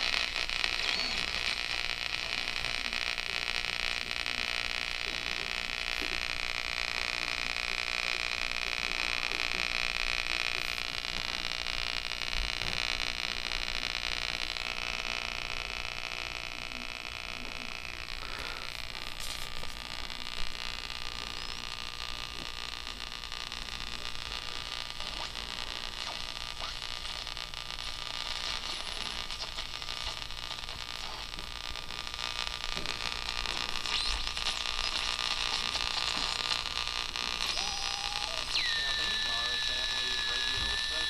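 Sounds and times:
radio static hiss: 0:00.0 - 0:41.0
faint radio whistles: 0:00.6 - 0:03.7, 0:21.1 - 0:21.9, 0:28.4 - 0:29.7, 0:33.6 - 0:41.0
radio click: 0:32.7 - 0:41.0.

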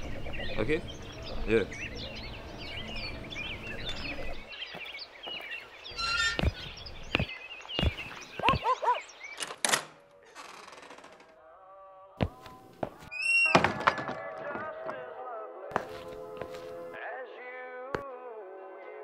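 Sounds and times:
birds chirping: 0:00.0 - 0:10.9
drawn-out creak: 0:05.9 - 0:06.6, 0:09.4 - 0:11.4
dull thuds: 0:06.0 - 0:08.7.

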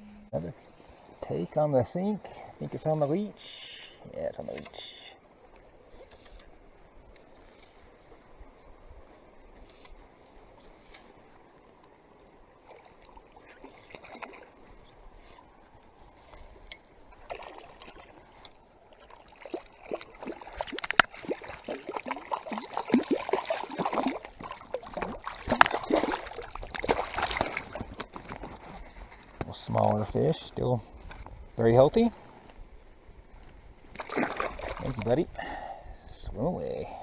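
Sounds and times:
fish splashing in water: 0:17.2 - 0:28.3, 0:34.0 - 0:35.0.

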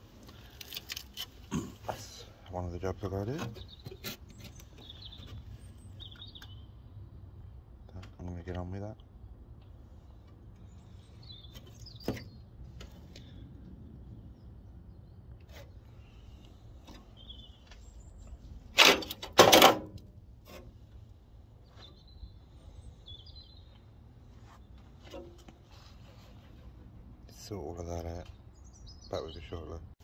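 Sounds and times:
metallic clanks on car body: 0:18.7 - 0:20.7, 0:25.0 - 0:25.6.

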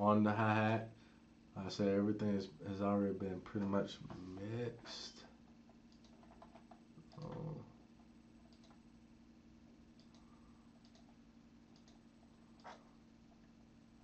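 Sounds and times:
steady low hum: 0:00.0 - 0:14.0
faint computer mouse clicks: 0:05.9 - 0:07.4, 0:08.5 - 0:08.8, 0:10.0 - 0:10.2, 0:10.8 - 0:12.0
man's voice murmuring: 0:07.2 - 0:07.8.

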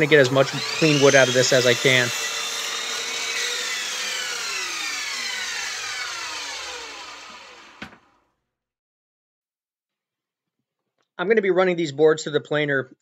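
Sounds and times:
miter saw spinning down: 0:00.0 - 0:08.2.

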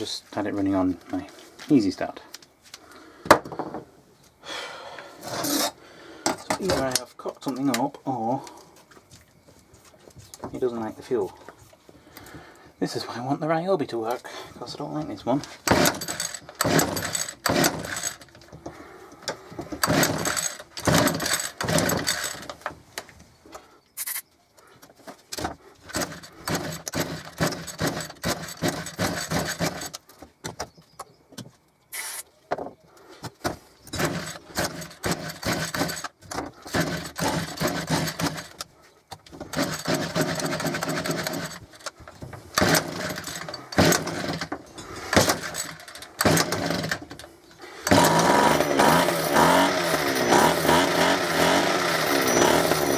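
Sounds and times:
recoil starter pulls: 0:05.3 - 0:08.7, 0:14.8 - 0:22.8, 0:25.3 - 0:30.2, 0:33.8 - 0:52.9
two-stroke engine coughing: 0:47.6 - 0:52.9.

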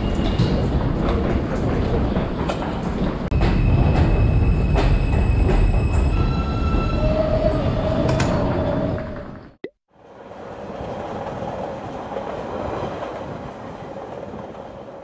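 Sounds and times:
train wheels squealing: 0:00.0 - 0:00.8, 0:03.4 - 0:09.4
subway train rumbling on rails: 0:00.0 - 0:15.0.

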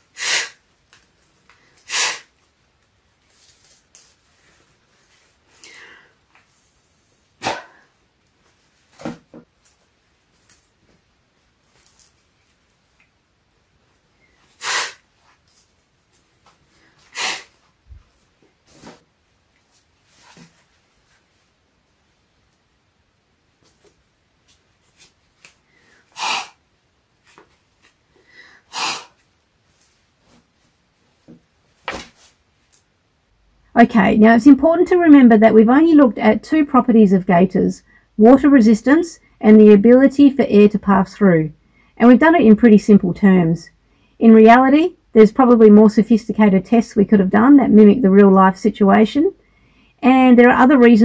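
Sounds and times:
puffs of breath through fabric: 0:00.1 - 0:00.6, 0:01.6 - 0:02.3, 0:05.5 - 0:06.2, 0:14.2 - 0:15.1, 0:16.7 - 0:17.6, 0:25.6 - 0:26.6, 0:28.2 - 0:29.2.

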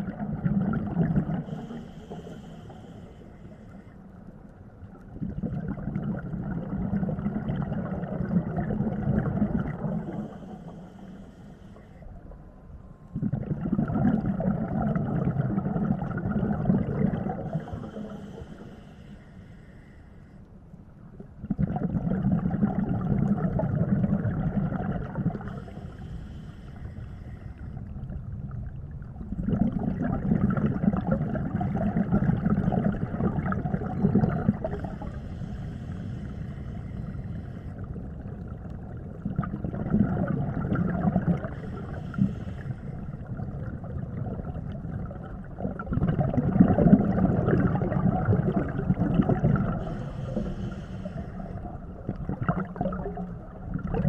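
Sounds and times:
diver exhaling bubbles: 0:00.0 - 0:02.5, 0:05.1 - 0:10.6, 0:13.2 - 0:18.5, 0:21.4 - 0:25.8, 0:29.2 - 0:54.0
breathing through regulator: 0:01.3 - 0:04.2, 0:10.0 - 0:12.2, 0:17.3 - 0:20.5, 0:25.4 - 0:27.9, 0:34.2 - 0:38.2, 0:41.3 - 0:43.5, 0:49.6 - 0:53.0.

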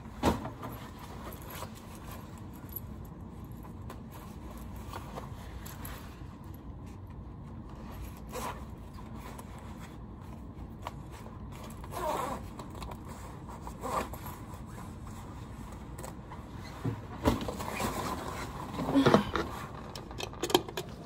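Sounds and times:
zipper clicking and scraping: 0:07.8 - 0:09.8, 0:10.8 - 0:15.3.

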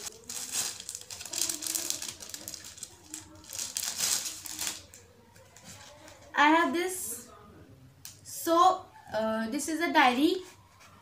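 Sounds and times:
packaging rustling and crinkling: 0:00.0 - 0:06.2.

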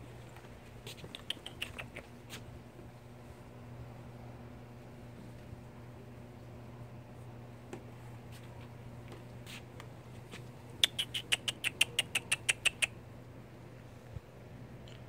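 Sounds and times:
skunks squeaking: 0:00.9 - 0:02.4, 0:10.8 - 0:13.0.

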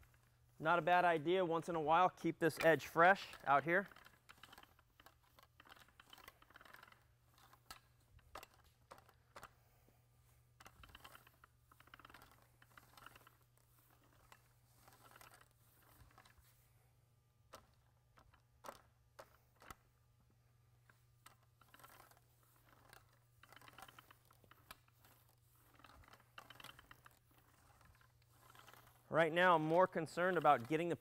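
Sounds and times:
small clicks: 0:02.2 - 0:09.8, 0:10.6 - 0:16.6, 0:17.4 - 0:20.0, 0:20.8 - 0:31.0
paint roller swishing and crackling: 0:21.5 - 0:31.0.

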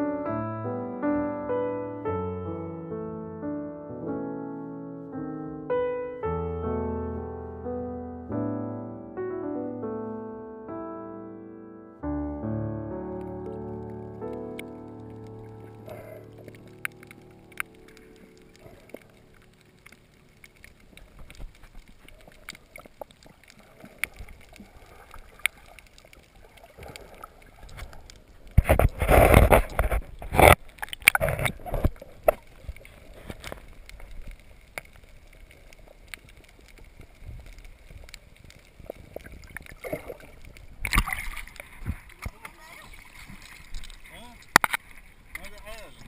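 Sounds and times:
underwater gurgling: 0:13.2 - 0:46.0
water splashing and sloshing: 0:13.2 - 0:46.0.

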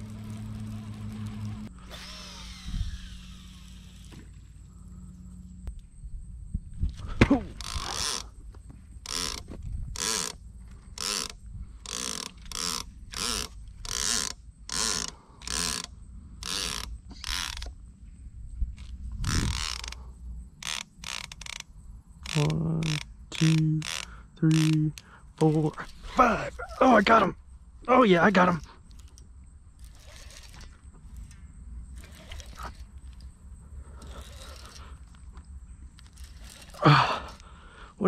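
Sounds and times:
short low hums: 0:00.0 - 0:05.9
fishing reel clicker ratcheting: 0:07.6 - 0:08.3, 0:09.0 - 0:10.4, 0:11.0 - 0:17.8, 0:18.8 - 0:20.0, 0:20.6 - 0:25.7, 0:29.8 - 0:31.3, 0:32.0 - 0:33.3, 0:34.0 - 0:34.8, 0:36.0 - 0:37.4.

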